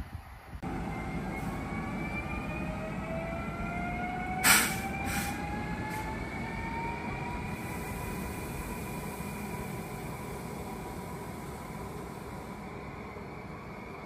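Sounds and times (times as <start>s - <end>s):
electric locomotive whine: 0.0s - 14.0s
train rolling rumble: 0.0s - 14.0s.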